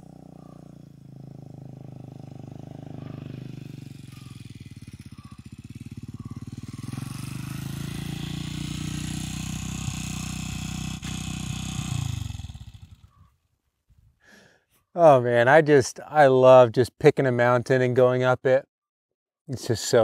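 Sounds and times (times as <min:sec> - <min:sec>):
dirt bike engine running: 0:00.0 - 0:13.3.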